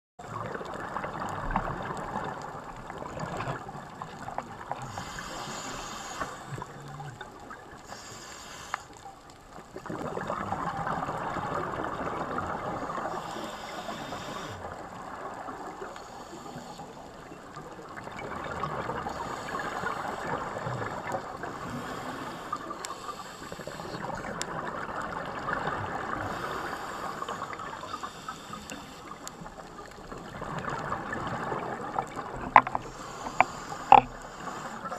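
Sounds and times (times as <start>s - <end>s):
underwater watery rushing: 0.2s - 34.9s
regulator breathing hiss: 4.8s - 6.7s, 7.8s - 9.0s, 13.0s - 14.7s, 21.5s - 24.2s, 26.2s - 29.5s, 32.8s - 34.9s.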